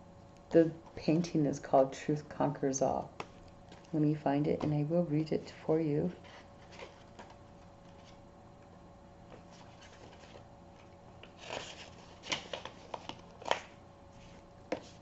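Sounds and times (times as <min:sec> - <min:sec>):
faint steady hum: 0:00.0 - 0:15.0
book pages flipping: 0:06.2 - 0:08.2, 0:09.3 - 0:15.0.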